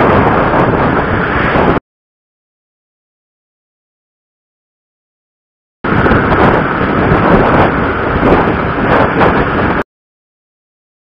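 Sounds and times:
motorcycle road noise: 0.0 - 1.8, 5.9 - 9.8
wind rush: 0.0 - 1.8, 5.8 - 9.9.

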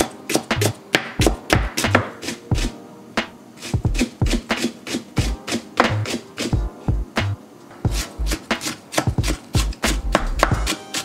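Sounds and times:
knife chopping on wooden board: 0.0 - 2.7, 3.7 - 6.6, 7.9 - 11.0
background music with steady beat: 0.0 - 11.0.

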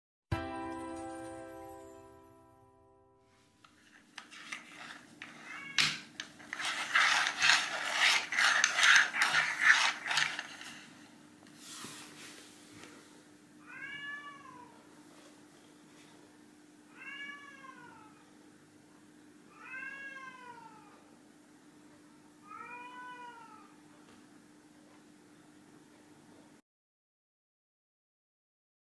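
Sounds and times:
plastic caps scraping on wooden floor: 3.7 - 11.0
cat meowing: 5.4 - 5.8, 13.6 - 14.8, 16.9 - 18.2, 19.5 - 21.0, 22.4 - 23.8.

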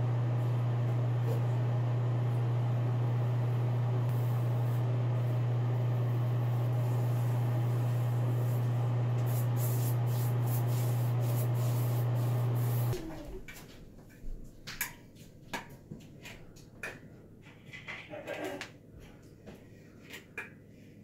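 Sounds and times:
low hum with hiss: 0.0 - 14.6.

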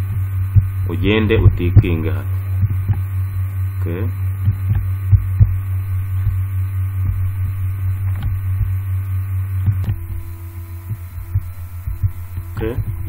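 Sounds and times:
low electrical hum: 0.0 - 13.0
soft low thumps: 0.0 - 13.0.

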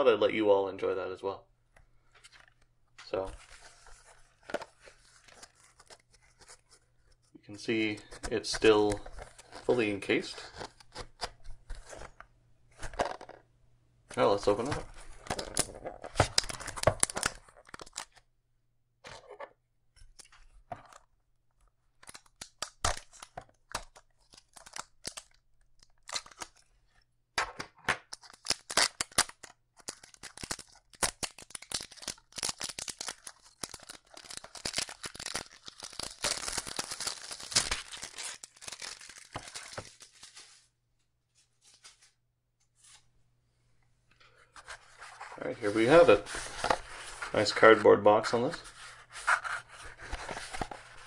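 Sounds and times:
plastic wrap tearing and crinkling: 14.9 - 18.2, 22.0 - 26.7, 28.1 - 40.6.

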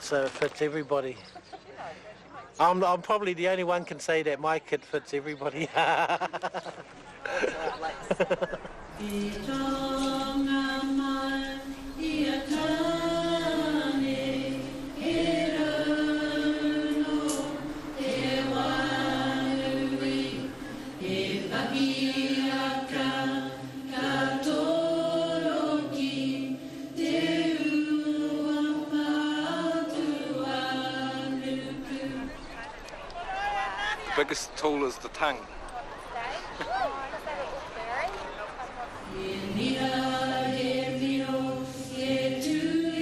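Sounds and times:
lower voice chanting: 9.0 - 33.2.

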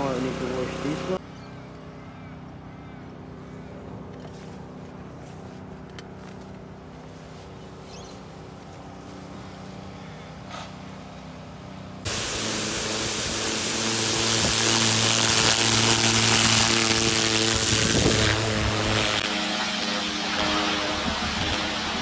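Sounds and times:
pressure washer motor humming: 0.0 - 1.2, 5.9 - 22.0
loud rushing hiss: 12.1 - 22.0.

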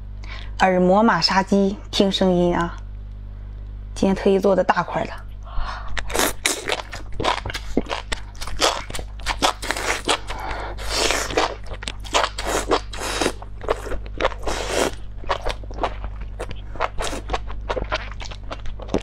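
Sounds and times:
slurping and crunchy chewing: 5.8 - 19.0.

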